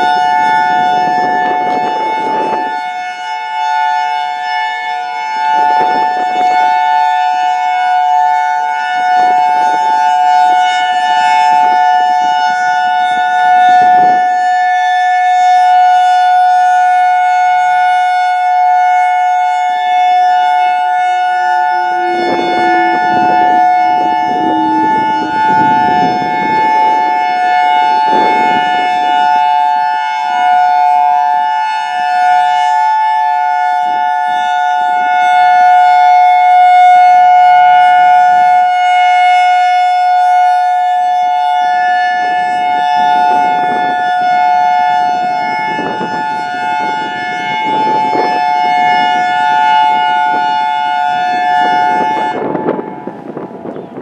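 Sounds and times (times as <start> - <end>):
dual-tone electronic siren: 0.0 - 54.0.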